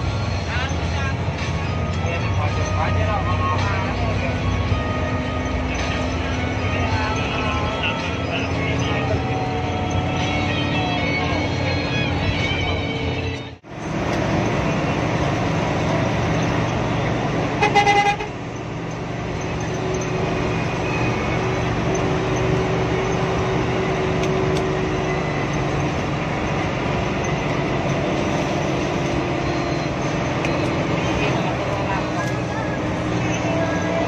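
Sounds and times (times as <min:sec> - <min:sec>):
bus engine: 0:00.0 - 0:34.0
tyres on wet road: 0:00.0 - 0:34.0
vehicle horn blast: 0:17.6 - 0:18.4.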